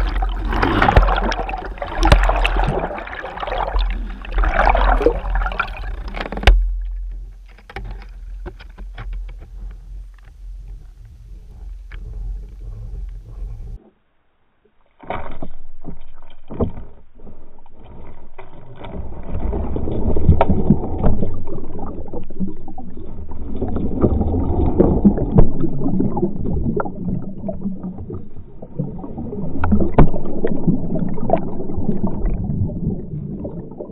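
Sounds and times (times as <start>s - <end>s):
underwater rumbling and sloshing: 0.0s - 33.9s
clicks and knocks: 5.7s - 10.8s.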